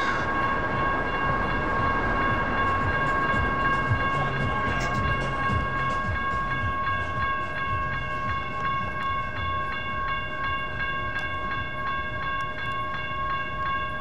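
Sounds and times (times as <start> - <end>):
railroad crossing bell ringing: 0.0 - 14.0.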